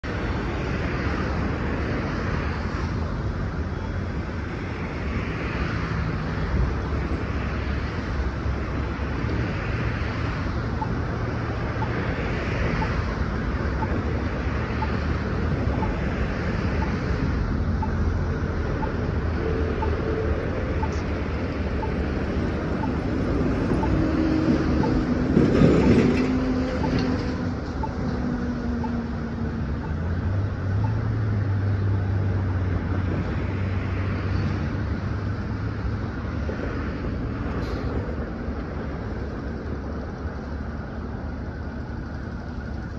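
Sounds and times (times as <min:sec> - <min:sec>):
bus drive humming: 0:00.0 - 0:42.9.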